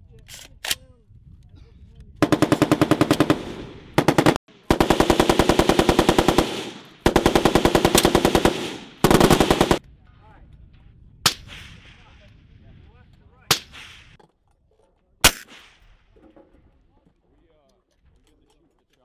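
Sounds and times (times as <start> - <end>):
machine gun bursts: 2.2 - 9.8
rifle shot: 2.2 - 9.8, 13.5 - 14.2, 15.2 - 16.1.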